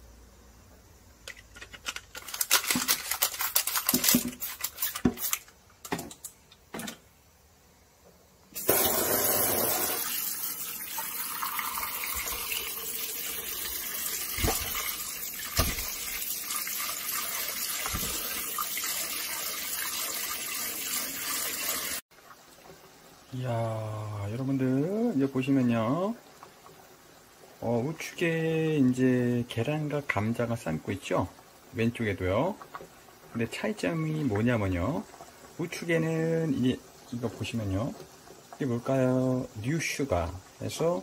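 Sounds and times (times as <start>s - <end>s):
tap water running into pot: 8.6s - 23.0s.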